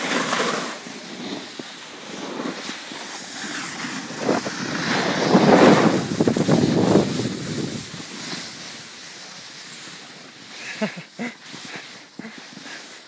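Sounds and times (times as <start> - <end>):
snowboards sliding on snow: 0.0 - 13.0
wind rushing over microphone: 1.2 - 9.0.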